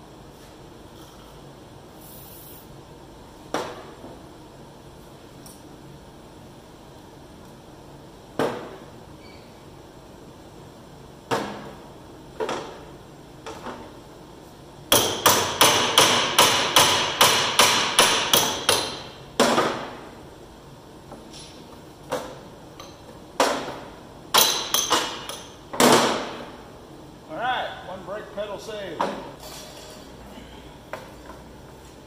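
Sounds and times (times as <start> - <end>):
hammer striking steel: 14.9 - 19.1, 24.4 - 25.4.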